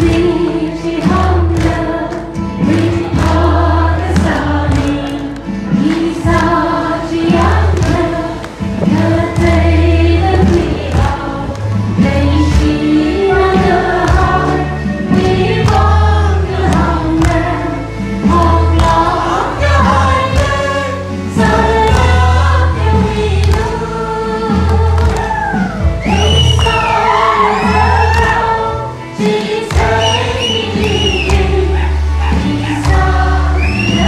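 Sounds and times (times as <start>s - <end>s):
hands clapping: 0.0s - 6.6s, 7.3s - 12.8s, 13.5s - 20.8s, 21.4s - 23.8s, 24.5s - 28.6s, 29.2s - 34.0s
crowd singing gospel song: 0.0s - 34.0s.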